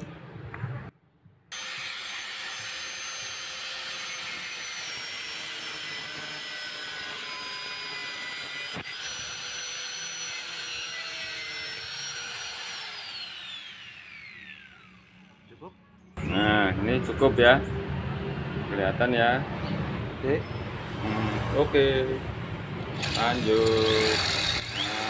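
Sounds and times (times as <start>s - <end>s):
angle grinder whining: 1.5s - 15.6s, 23.0s - 25.0s.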